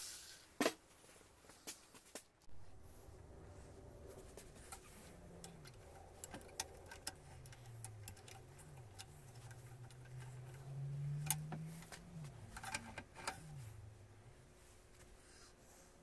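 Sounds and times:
faint low hum: 2.5s - 16.0s
metallic clicks and taps: 4.6s - 13.5s.

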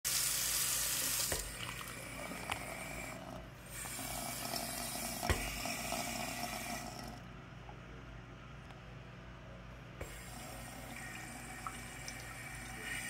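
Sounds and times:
faucet water running into sink: 0.1s - 3.1s, 10.0s - 13.0s.

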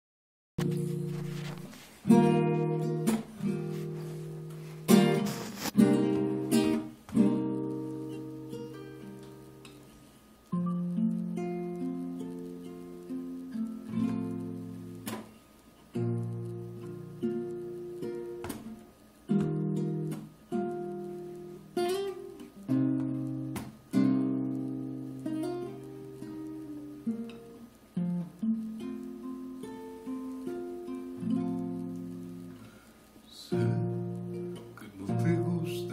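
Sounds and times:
percussive guitar hit: 0.6s - 7.8s, 18.4s - 20.3s, 22.8s - 24.3s
acoustic guitar strummed chords: 0.6s - 35.9s.

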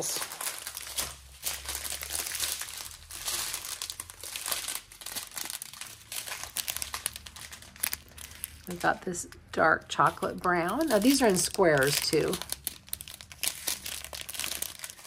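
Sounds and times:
plastic bags crinkling: 0.0s - 15.0s.

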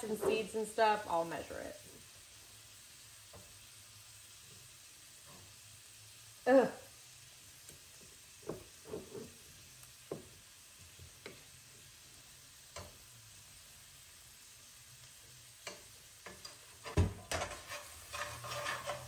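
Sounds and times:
utensils tapping frying pan: 0.0s - 0.7s, 3.2s - 3.8s, 7.6s - 11.9s, 12.6s - 13.1s, 15.0s - 19.0s
faint frying sizzle: 0.0s - 19.0s.

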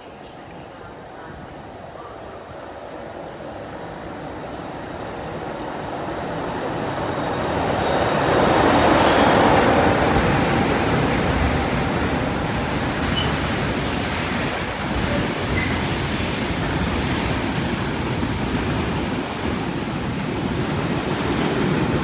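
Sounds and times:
electric locomotives passing: 0.0s - 22.0s
train wheels clattering on rails: 6.8s - 22.0s.

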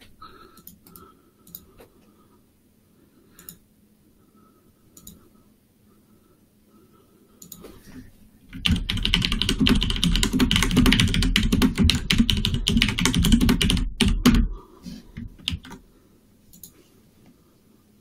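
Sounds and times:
fast keyboard typing: 8.5s - 14.5s, 15.2s - 15.8s.

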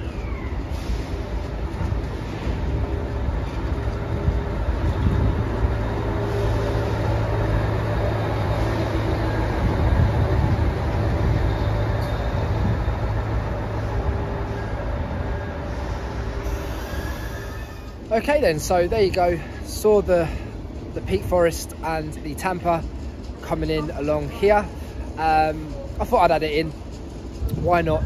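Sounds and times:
diesel engine droning: 0.0s - 21.4s.

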